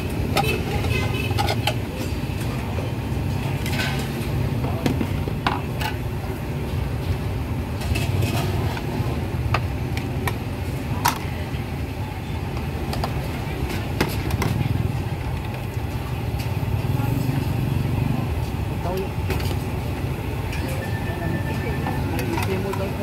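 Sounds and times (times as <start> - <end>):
low rumble of traffic: 0.0 - 23.0
dishes and utensils clinking: 0.3 - 2.8, 3.4 - 6.0.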